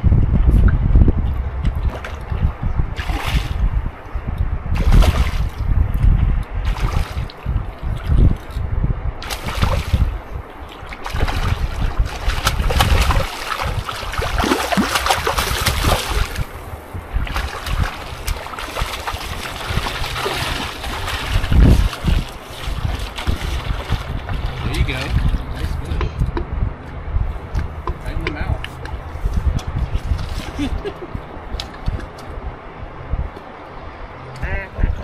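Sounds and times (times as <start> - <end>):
wind on microphone: 0.0 - 35.0
river water splashing: 1.7 - 3.7, 4.7 - 5.7, 6.6 - 8.3, 9.2 - 25.9.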